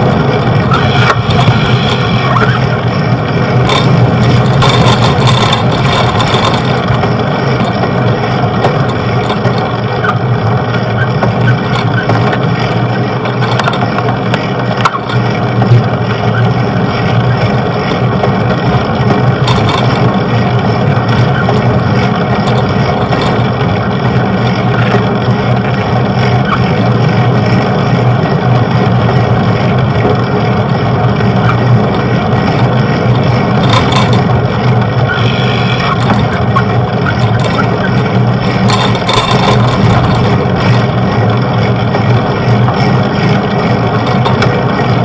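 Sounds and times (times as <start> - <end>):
wind and road noise: 0.0 - 45.0.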